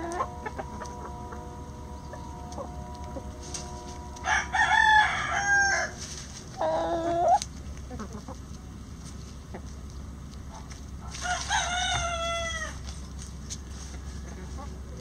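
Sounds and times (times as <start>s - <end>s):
rooster crowing: 0.0s - 6.0s, 11.2s - 12.8s.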